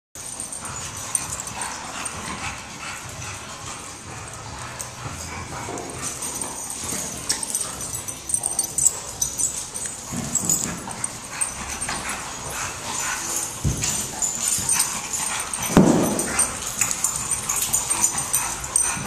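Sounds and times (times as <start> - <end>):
paws scuffling on concrete: 0.2 - 19.0
puppies vocalizing: 0.2 - 19.0.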